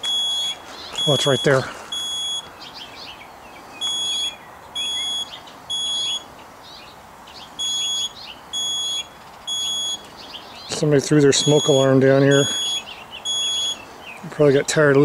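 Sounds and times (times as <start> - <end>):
smoke alarm beeping: 0.0 - 2.5, 3.8 - 6.3, 7.6 - 10.1, 11.3 - 13.8.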